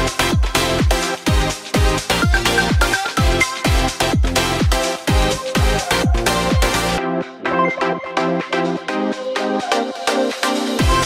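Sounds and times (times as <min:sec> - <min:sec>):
kick drum beat: 0:00.0 - 0:06.8, 0:10.8 - 0:11.0
heavy bass: 0:00.0 - 0:07.4, 0:10.8 - 0:11.0
rhythmic synth chords: 0:00.0 - 0:11.0.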